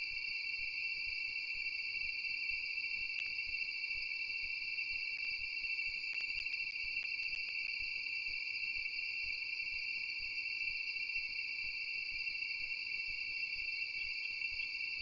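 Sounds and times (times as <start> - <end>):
night insects chorus: 0.0 - 15.0
faint clicks: 6.1 - 7.7.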